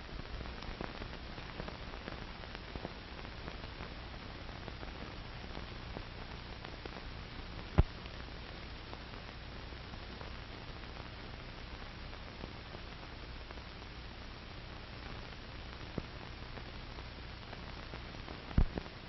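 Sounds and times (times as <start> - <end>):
crackles: 0.0 - 19.0
film soundtrack hiss: 0.0 - 19.0.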